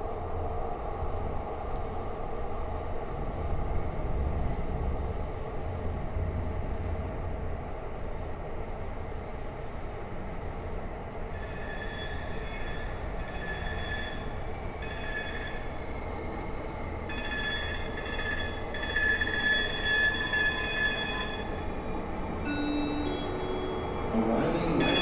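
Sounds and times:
low train rumble: 0.0 - 25.0
steel wheel squeal: 11.3 - 16.0, 17.1 - 25.0.

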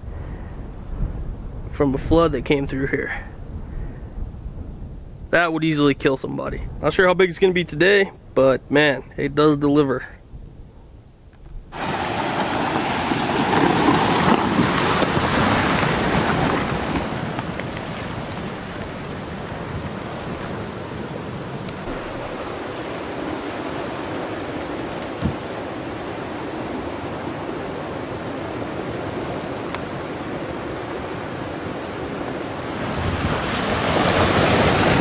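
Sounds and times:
floodwater rushing with debris: 11.7 - 35.0
brief thump: 25.1 - 25.4.

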